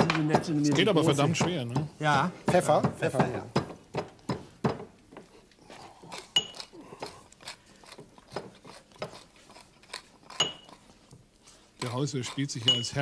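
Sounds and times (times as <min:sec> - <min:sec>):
pepper mill grinding: 0:06.1 - 0:13.0
crockery clinks: 0:06.4 - 0:06.6, 0:12.7 - 0:13.0.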